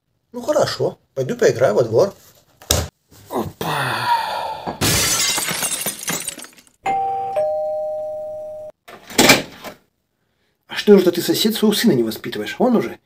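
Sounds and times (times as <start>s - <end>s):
glass shattering: 4.8s - 6.8s
two-tone doorbell chime: 6.9s - 8.7s.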